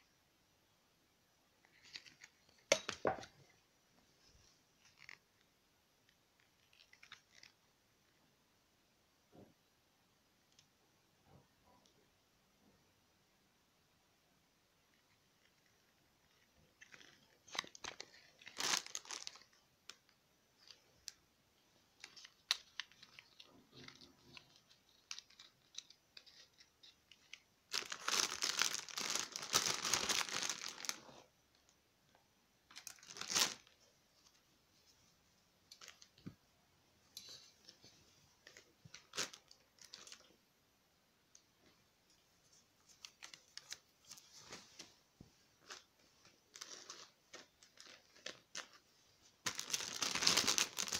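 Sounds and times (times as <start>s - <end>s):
wrappers rustling and clicking: 4.7s - 7.6s, 14.9s - 21.2s, 21.9s - 31.7s, 32.7s - 34.4s, 35.7s - 36.3s, 37.2s - 40.4s, 42.1s - 50.9s
wrapper tearing and crinkling: 16.8s - 21.2s, 22.0s - 31.2s, 32.7s - 33.8s, 38.4s - 40.3s, 42.9s - 44.2s, 46.5s - 48.8s, 49.4s - 50.9s.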